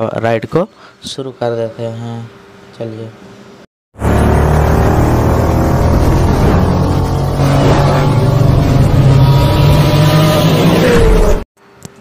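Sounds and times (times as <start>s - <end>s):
loud vehicle engine running: 4.0s - 11.4s.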